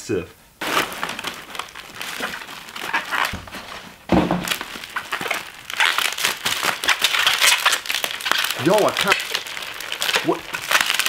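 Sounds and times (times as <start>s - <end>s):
bubble wrap crinkling: 0.6s - 11.0s
dull thump: 3.3s - 4.6s.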